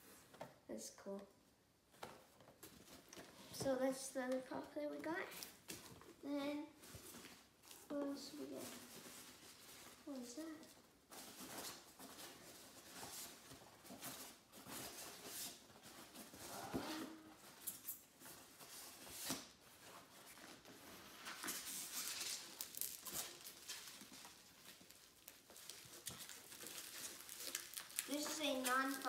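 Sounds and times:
packing material rustling in box: 6.9 - 29.0.

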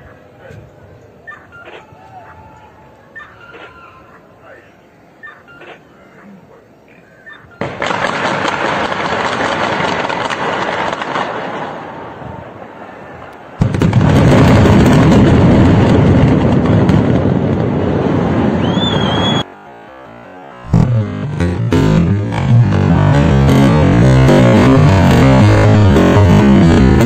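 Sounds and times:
building collapse roar: 7.6 - 27.0
detonating charges crackling: 7.6 - 27.0.

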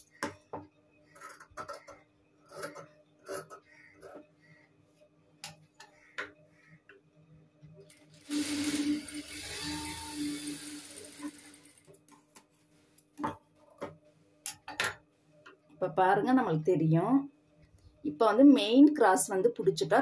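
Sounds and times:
sewing machine whirring: 7.9 - 12.0.

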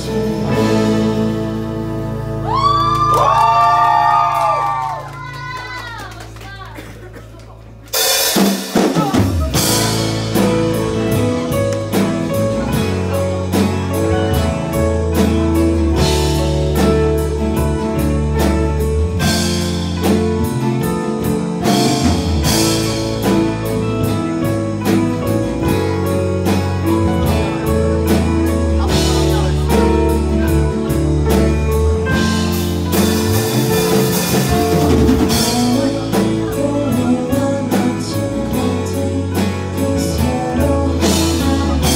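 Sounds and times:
live rock band playing: 0.0 - 41.9
drum hits: 8.0 - 37.1.

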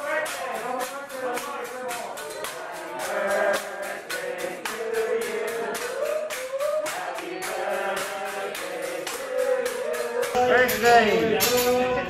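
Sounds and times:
quick steady percussion beat: 0.0 - 11.7
person singing: 0.0 - 12.0.

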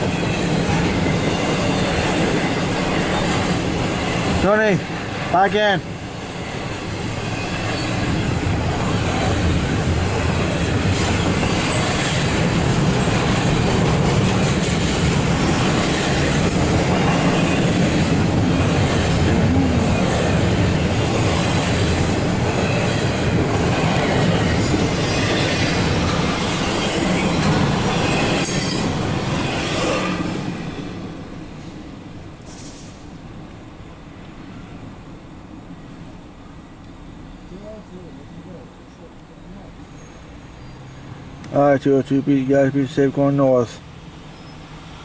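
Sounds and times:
rail clacks: 0.0 - 31.8
freight train wheels rumbling on rails: 0.0 - 45.0.

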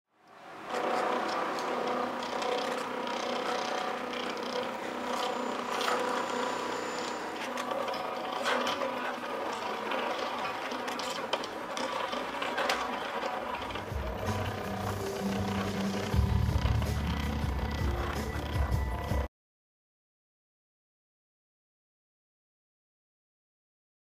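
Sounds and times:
mechanism clicks and ticks: 0.3 - 19.3
motor whine: 0.4 - 19.3.

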